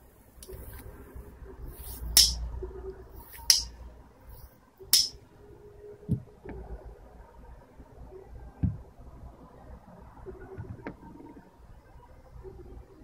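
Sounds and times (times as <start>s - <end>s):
sharp metallic clacks: 2.2s - 2.4s, 3.5s - 3.7s, 4.9s - 5.2s.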